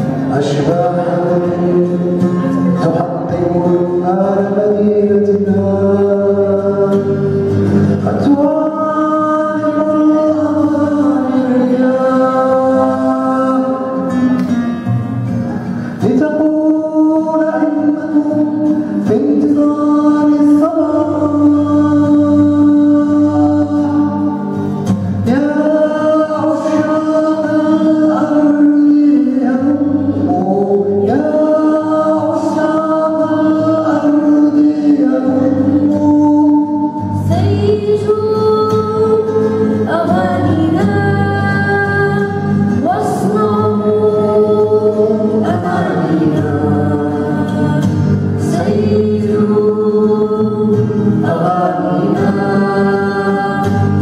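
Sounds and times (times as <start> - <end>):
strummed acoustic guitar: 0.0 - 54.0
girl singing slow melody: 16.6 - 29.0, 29.9 - 34.8, 35.4 - 54.0.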